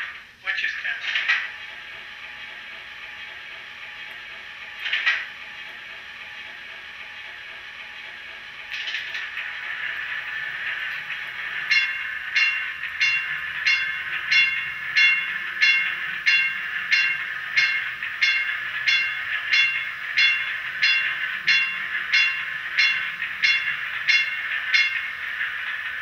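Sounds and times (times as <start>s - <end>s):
trolley bell ringing: 8.7s - 26.0s.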